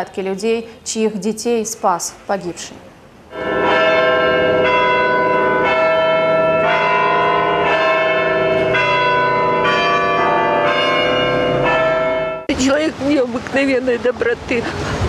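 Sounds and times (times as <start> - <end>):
church bells ringing: 3.3 - 12.5.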